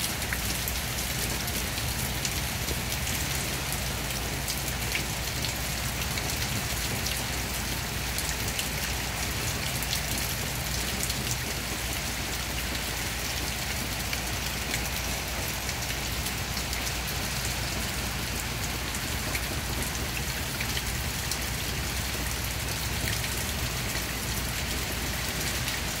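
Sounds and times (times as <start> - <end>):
rain hiss: 0.0 - 26.0.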